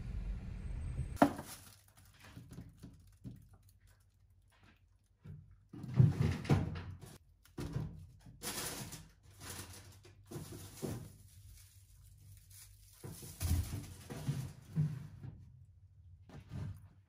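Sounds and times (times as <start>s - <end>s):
items set down with thumps: 1.2s - 1.6s
plastic bags rustling: 1.2s - 5.4s, 8.2s - 14.7s.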